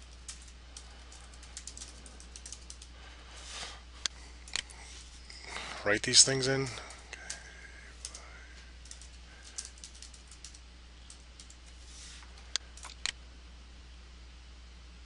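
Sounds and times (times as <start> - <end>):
keyboard typing: 0.0 - 2.9, 4.1 - 4.8, 6.8 - 11.8
steady low hum: 0.0 - 15.0.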